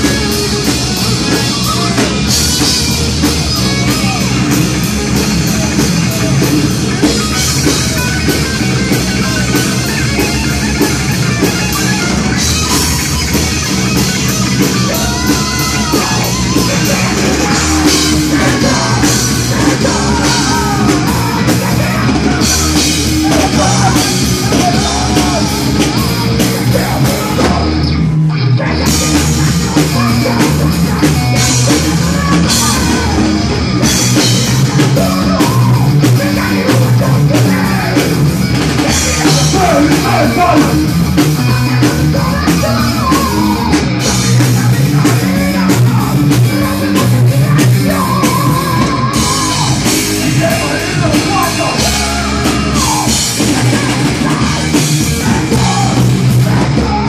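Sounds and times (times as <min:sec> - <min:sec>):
heavy metal band playing live: 0:00.0 - 0:57.0
singer's vocals: 0:11.6 - 0:57.0.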